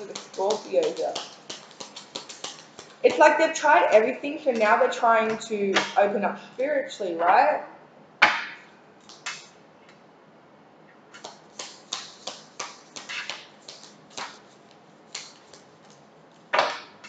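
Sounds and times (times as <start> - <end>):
cards being shuffled: 0.0 - 3.2, 11.2 - 16.5.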